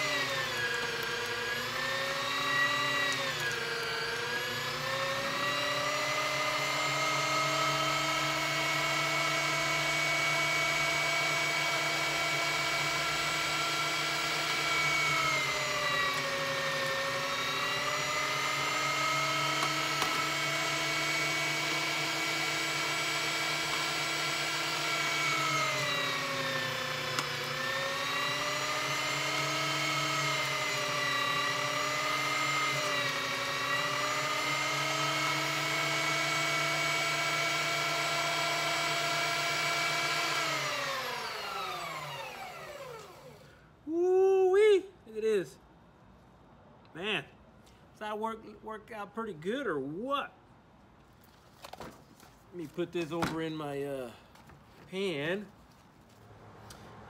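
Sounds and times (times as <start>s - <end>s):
electric meat grinder motor whine: 0.0s - 43.7s.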